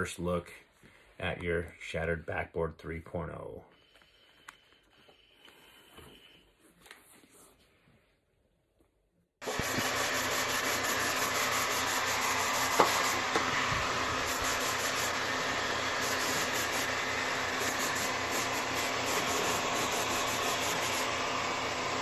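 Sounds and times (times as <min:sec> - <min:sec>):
heat gun blowing: 0:09.4 - 0:22.0.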